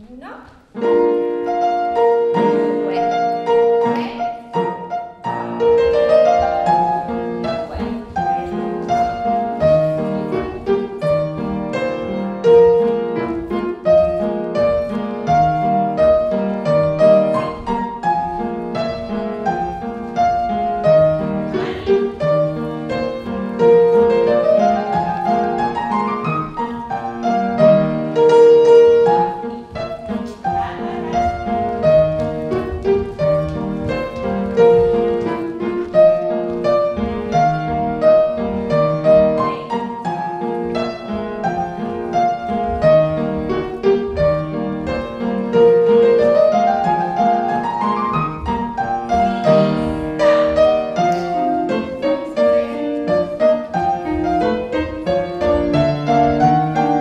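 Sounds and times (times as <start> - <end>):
classical piano music: 0.0 - 57.0.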